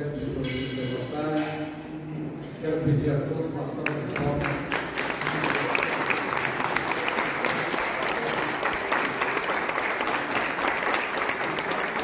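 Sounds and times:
crowd applauding: 0:03.8 - 0:12.0.

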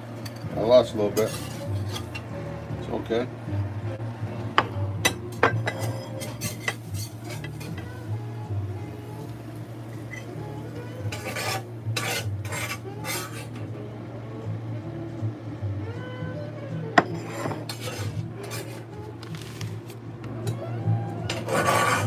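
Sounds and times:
spatula scraping skillet: 0:01.2 - 0:02.3, 0:05.6 - 0:07.9, 0:11.0 - 0:13.6, 0:17.1 - 0:19.7, 0:21.3 - 0:22.0.

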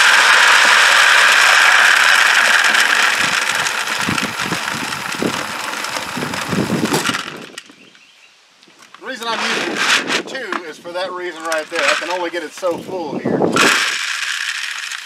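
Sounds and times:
pellets pouring into plastic bucket: 0:00.0 - 0:07.4, 0:13.6 - 0:15.0.

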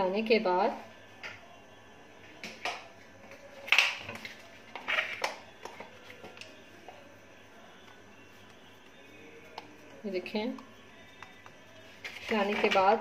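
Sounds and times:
faint steady hum: 0:00.0 - 0:13.0
hands pressing soft dough: 0:03.7 - 0:13.0.

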